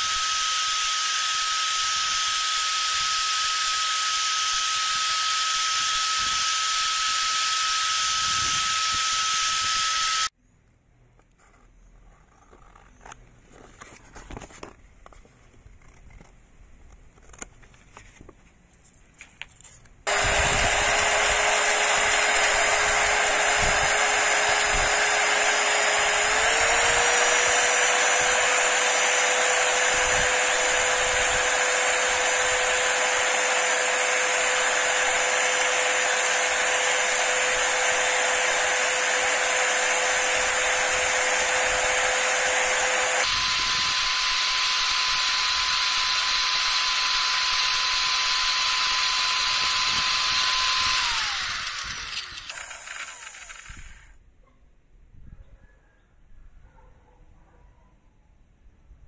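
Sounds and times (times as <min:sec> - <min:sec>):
power tool motor whining: 0:00.0 - 0:10.3, 0:20.1 - 0:54.2.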